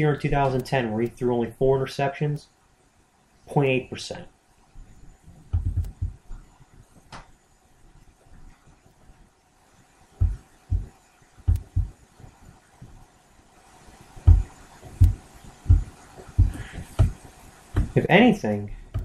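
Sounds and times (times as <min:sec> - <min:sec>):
low dull thumps: 0:04.8 - 0:06.5, 0:10.2 - 0:12.0, 0:14.2 - 0:18.1, 0:18.7 - 0:19.0.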